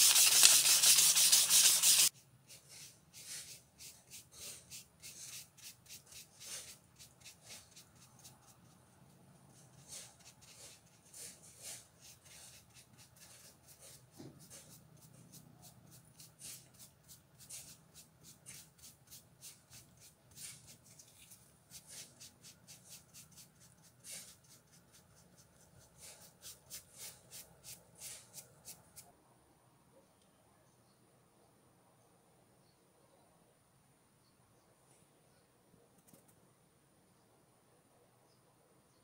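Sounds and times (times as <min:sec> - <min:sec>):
paintbrush strokes on wood: 0:00.0 - 0:29.1.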